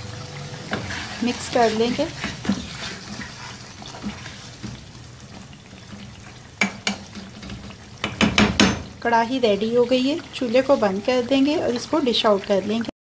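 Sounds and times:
meat sizzling in a wok: 0.0s - 12.8s
spatula stirring gravy: 0.6s - 8.4s
spatula knocking against pan: 6.6s - 8.9s.

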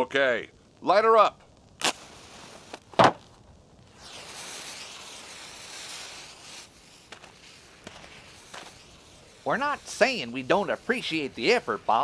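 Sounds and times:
fuse hissing: 3.8s - 12.0s.

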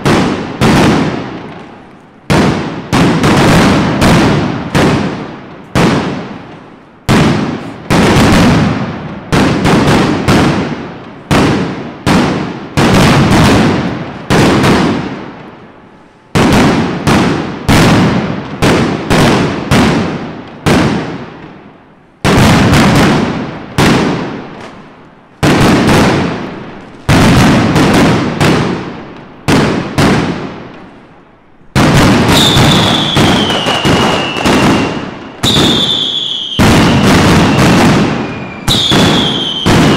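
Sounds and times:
firecrackers banging: 0.0s - 39.9s
whistling firework: 31.8s - 39.9s.

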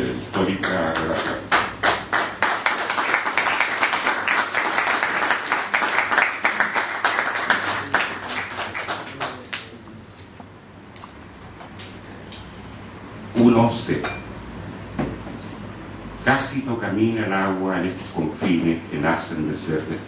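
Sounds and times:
audience applauding: 0.6s - 9.8s.

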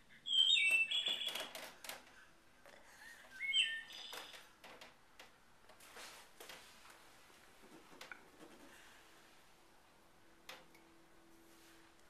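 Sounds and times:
clock bird call chirping: 0.2s - 1.6s, 3.3s - 4.5s.

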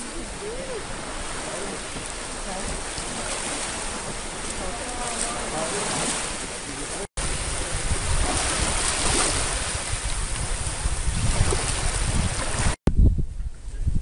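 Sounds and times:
small waves washing: 0.0s - 12.8s
wind buffeting microphone: 0.0s - 14.0s.

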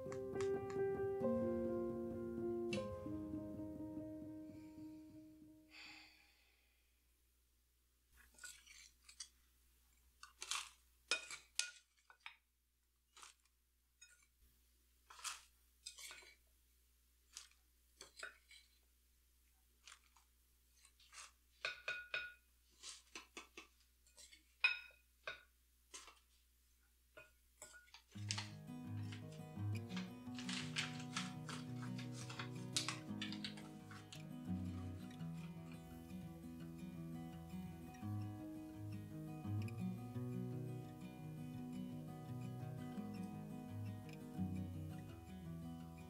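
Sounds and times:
hands crumbling gritty soil mix: 28.2s - 34.8s.

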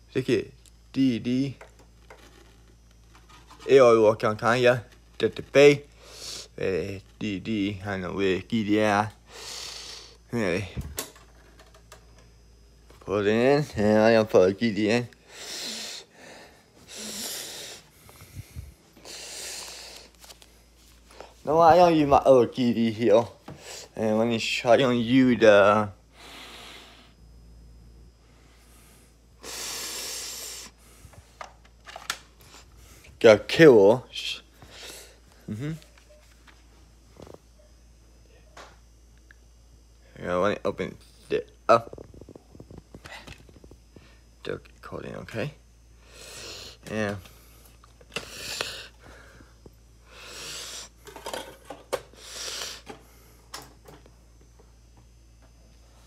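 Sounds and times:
person breathing: 5.9s - 6.6s, 9.2s - 10.2s, 15.2s - 20.2s, 26.1s - 27.2s, 28.2s - 31.3s, 46.0s - 51.0s, 52.1s - 53.5s.

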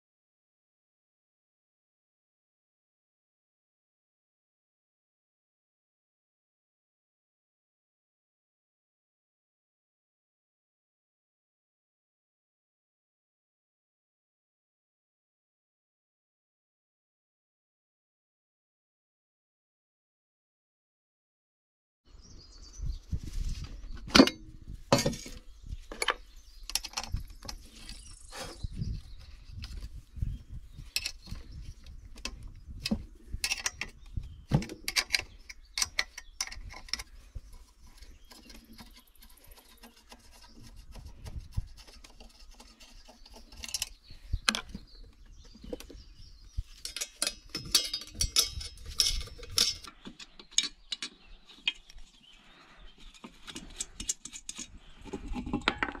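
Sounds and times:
hand tools clinking on metal: 33.4s - 34.0s, 46.8s - 51.9s.

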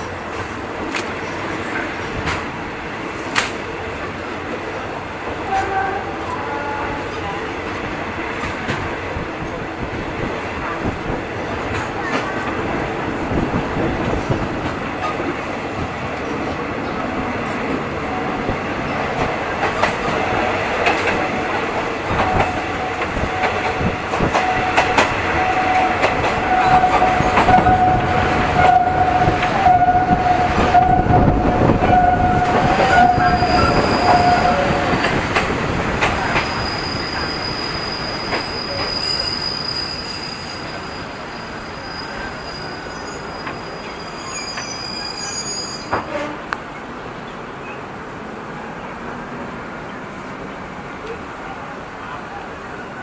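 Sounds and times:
train rumble: 0.0s - 53.0s
long steady squeal: 24.4s - 35.0s, 36.4s - 46.0s.

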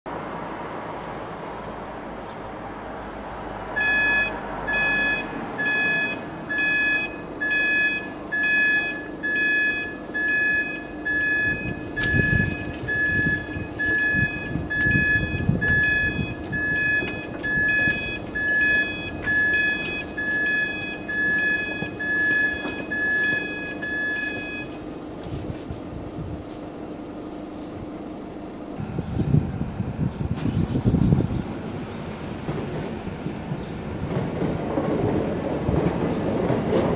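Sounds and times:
low rumbling: 2.4s - 36.9s
crossing alarm beeping: 3.8s - 25.0s.

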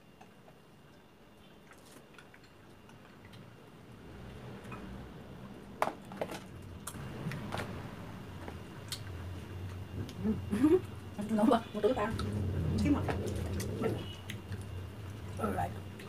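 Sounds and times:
low rumble: 12.0s - 15.9s.

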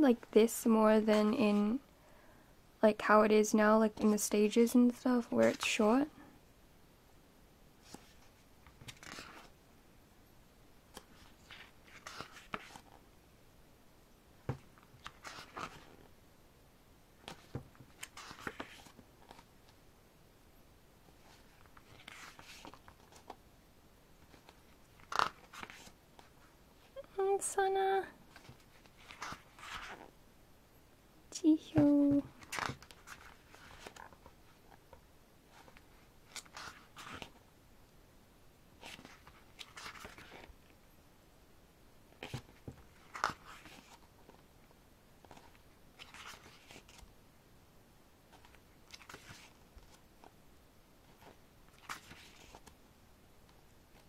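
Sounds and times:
page flipping: 7.8s - 9.5s, 10.9s - 13.0s, 14.6s - 16.1s, 17.2s - 19.5s, 21.2s - 23.4s, 24.2s - 26.4s, 28.3s - 30.1s, 31.8s - 37.4s, 38.8s - 40.5s, 42.2s - 44.4s, 45.2s - 47.1s, 48.3s - 50.3s, 51.0s - 52.8s
paper page rustling: 7.8s - 9.5s, 10.9s - 13.0s, 14.8s - 16.1s, 17.3s - 19.5s, 21.2s - 23.4s, 24.2s - 26.5s, 28.3s - 30.1s, 31.8s - 34.9s, 35.5s - 37.4s, 38.8s - 40.5s, 42.2s - 44.4s, 45.2s - 47.1s, 48.3s - 50.3s, 51.0s - 52.8s.

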